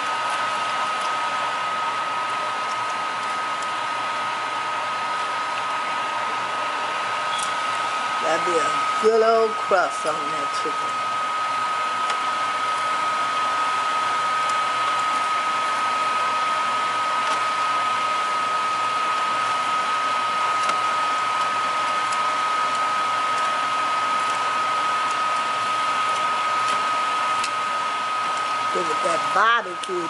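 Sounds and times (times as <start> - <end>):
exhaust fan running: 0.0 - 30.0.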